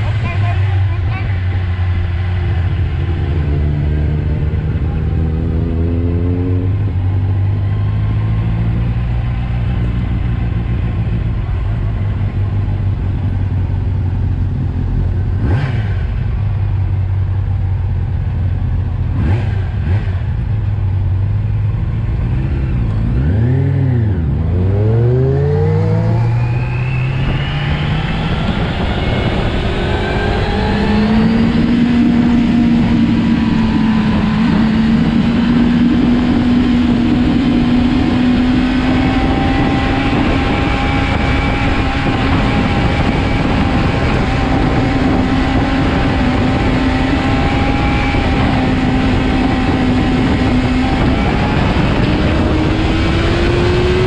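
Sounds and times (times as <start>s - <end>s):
motorcycle engine revving: 0.0s - 54.0s
wind noise: 21.6s - 54.0s.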